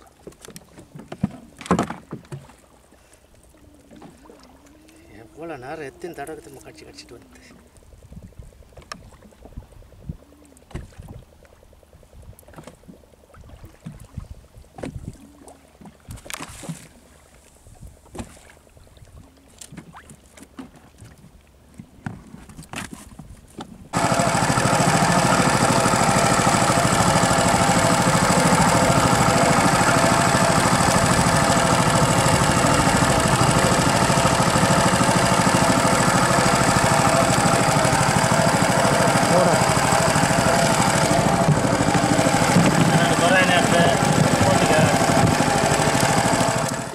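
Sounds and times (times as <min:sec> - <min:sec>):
boat engine running: 0:23.9 - 0:46.9.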